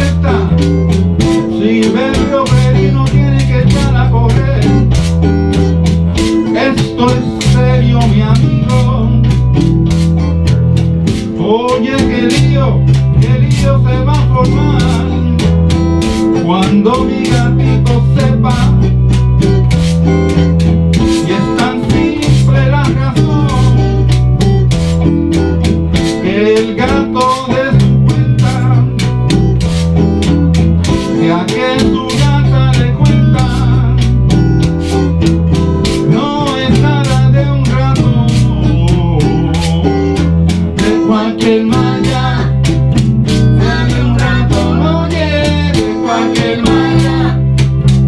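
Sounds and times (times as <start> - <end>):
electric bass line: 0.0 - 48.0
electric guitar lead: 0.0 - 48.0
steady drum beat: 0.0 - 48.0.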